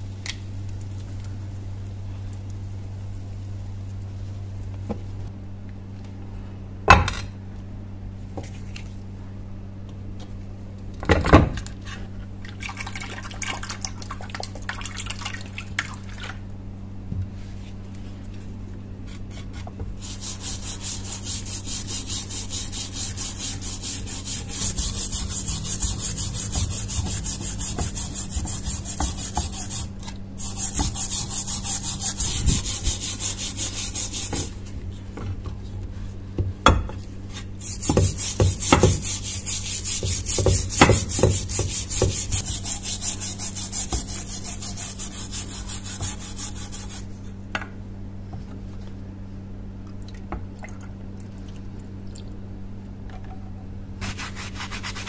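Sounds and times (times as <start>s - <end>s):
brush scrubbing metal in liquid: 20.0s - 34.6s, 37.6s - 47.1s, 54.0s - 55.0s.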